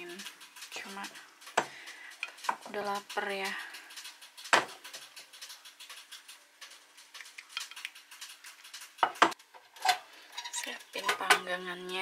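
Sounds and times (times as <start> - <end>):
quick clicks: 0.1 - 9.4.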